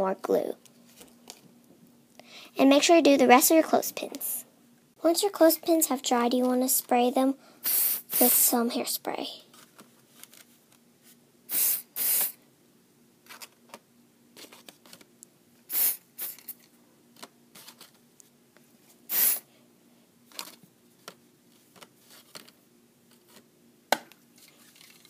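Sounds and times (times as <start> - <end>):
aerosol spray bursts: 7.7 - 8.4, 11.5 - 12.4, 15.7 - 16.5, 19.1 - 19.5.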